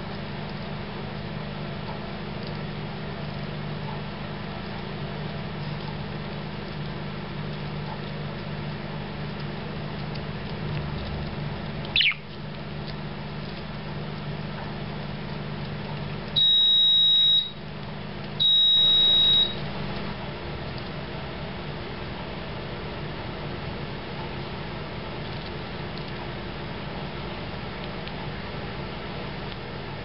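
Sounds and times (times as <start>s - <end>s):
steady low hum: 0.0s - 30.0s
short falling chirp: 11.9s - 12.2s
high electronic beeps: 12.0s - 12.2s.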